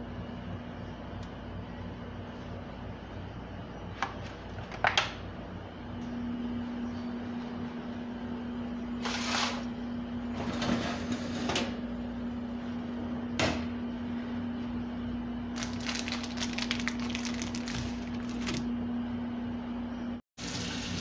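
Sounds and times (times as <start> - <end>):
foil tray onto oven rack: 9.0 - 9.7.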